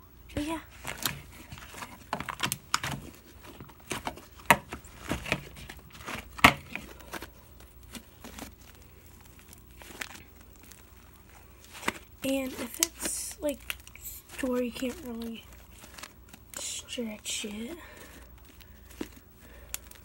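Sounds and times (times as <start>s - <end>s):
slime crackling when squeezed: 7.5s - 20.0s.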